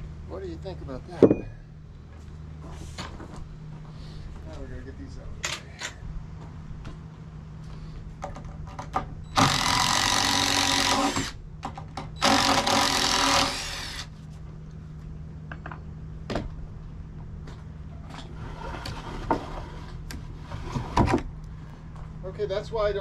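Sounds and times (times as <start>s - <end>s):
cordless drill motor running: 9.3s - 11.4s, 12.2s - 14.1s.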